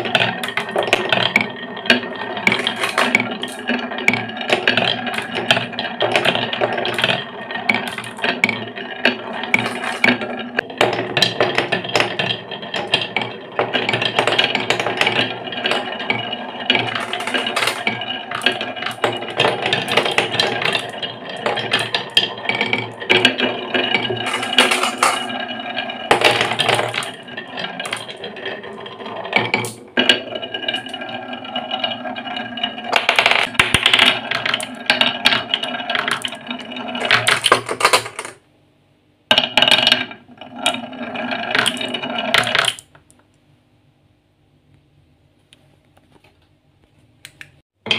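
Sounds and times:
marbles clacking: 0:00.0 - 0:38.4, 0:39.3 - 0:43.0
marbles rolling on wooden track: 0:00.0 - 0:38.4, 0:39.3 - 0:43.1.

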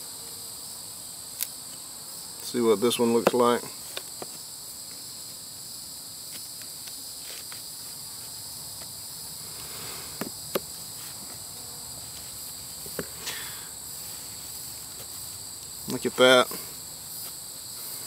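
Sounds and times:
insect chorus: 0:00.0 - 0:18.0
hive tool prying on wood: 0:03.2 - 0:04.4, 0:10.2 - 0:10.7.

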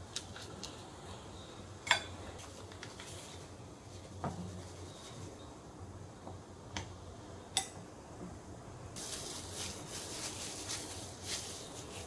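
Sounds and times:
plastic gloves crinkling: 0:02.4 - 0:05.3, 0:09.0 - 0:12.0.

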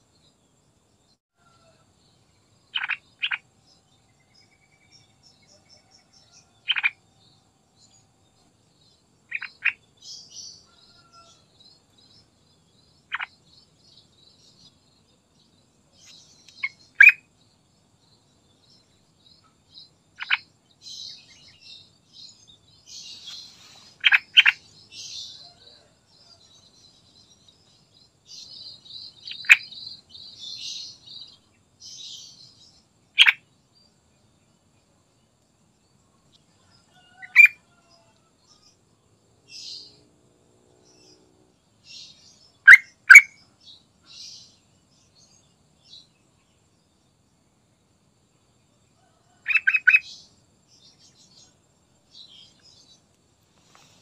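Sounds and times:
birds twittering: 0:02.6 - 0:08.1, 0:08.7 - 0:33.4, 0:36.9 - 0:38.7.

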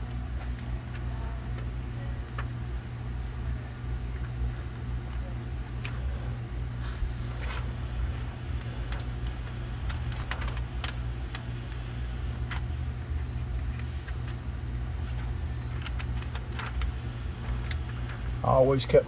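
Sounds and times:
low hum: 0:00.0 - 0:19.0
plastic film crackling: 0:05.1 - 0:18.6.

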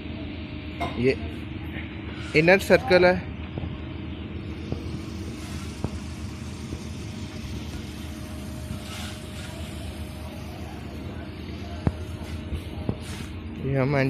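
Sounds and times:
faint steady hum: 0:00.0 - 0:14.0
low outdoor rumble: 0:00.0 - 0:14.0
minivan tyres hissing on wet road: 0:05.0 - 0:10.1.

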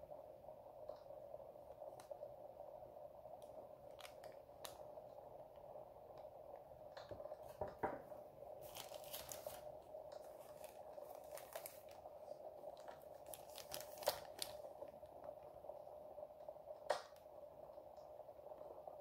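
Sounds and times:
faint steady hum: 0:00.0 - 0:19.0
plastic bags crinkling: 0:03.9 - 0:04.9, 0:08.5 - 0:15.0.

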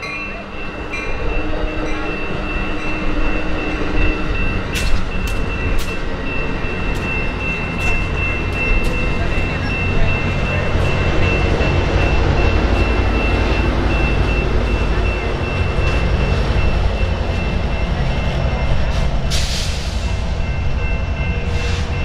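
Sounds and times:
train wheels rumbling on rails: 0:00.0 - 0:22.0
diesel engine: 0:02.2 - 0:22.0
air brake hiss: 0:19.3 - 0:20.0.

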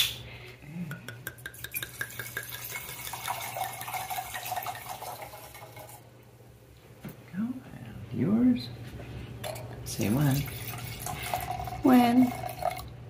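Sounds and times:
bottle and glasses clinking: 0:01.3 - 0:05.9
wine pouring into a glass: 0:01.5 - 0:06.0, 0:09.5 - 0:13.0.

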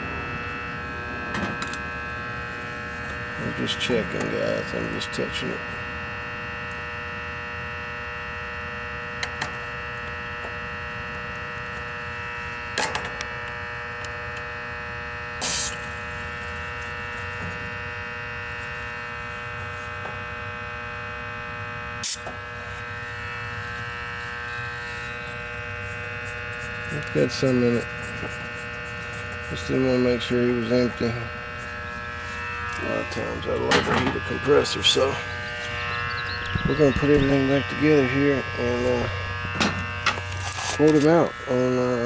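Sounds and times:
electrical buzz: 0:00.0 - 0:42.0
refrigerant hissing from valve: 0:15.4 - 0:16.6, 0:22.0 - 0:25.4.

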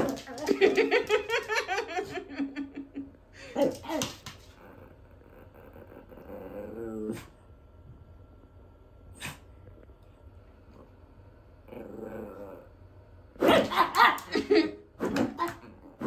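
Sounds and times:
dog grumbling: 0:03.6 - 0:07.3, 0:11.7 - 0:12.8.

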